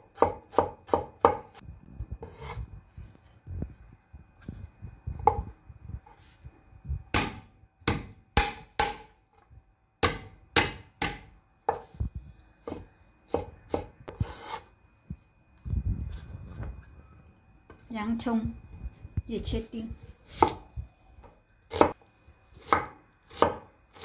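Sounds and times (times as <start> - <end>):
blade scraping cutting board: 2.2 - 2.7, 14.1 - 14.7
cleaver chopping on wooden board: 7.1 - 9.1, 10.0 - 11.8.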